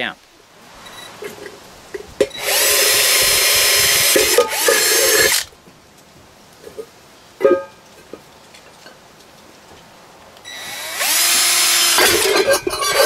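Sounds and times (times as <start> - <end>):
cordless drill whining through metal: 2.3 - 5.5, 10.5 - 13.0.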